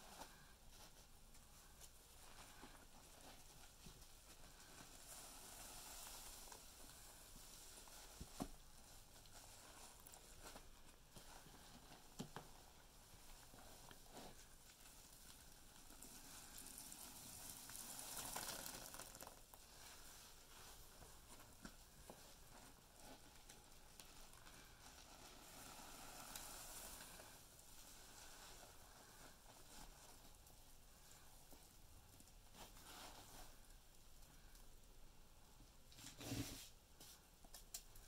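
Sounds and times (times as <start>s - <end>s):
foam crackling: 13.0s - 31.3s
wet sponge squishing: 16.0s - 21.4s.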